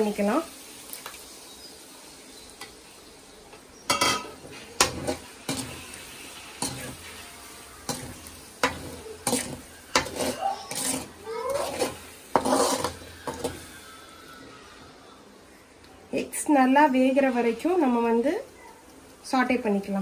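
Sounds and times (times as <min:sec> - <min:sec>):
hot oil sizzling: 0:00.0 - 0:20.0
metal skimmer scraping a pan: 0:03.9 - 0:13.9.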